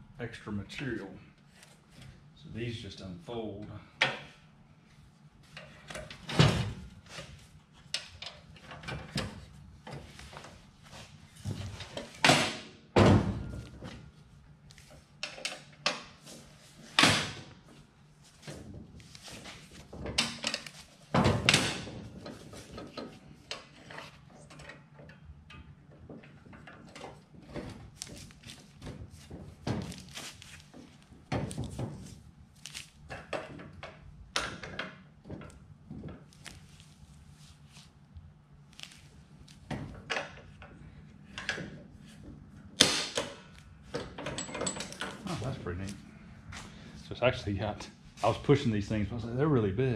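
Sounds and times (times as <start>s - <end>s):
metal frame clunking and knocking: 5.5s - 14.2s, 18.4s - 32.2s, 33.1s - 36.4s, 43.2s - 45.5s.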